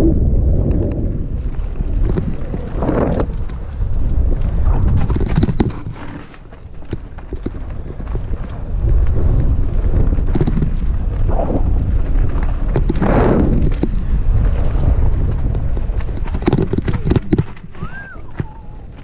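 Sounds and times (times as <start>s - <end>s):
wind buffeting microphone: 0.0s - 19.0s
rattling clicks and knocks: 15.9s - 17.8s.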